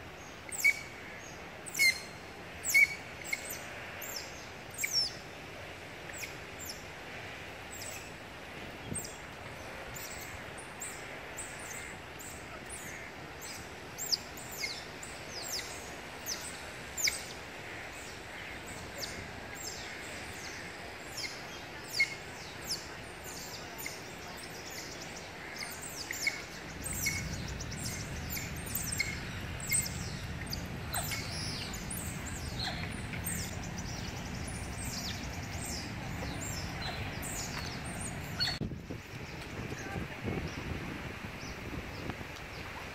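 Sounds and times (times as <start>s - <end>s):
low steady rumble: 25.9s - 39.9s.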